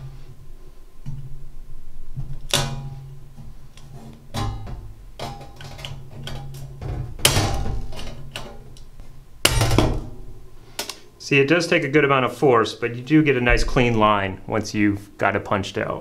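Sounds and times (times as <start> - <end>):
nibbler punching sheet metal: 2.2 - 8.8, 9.4 - 10.4.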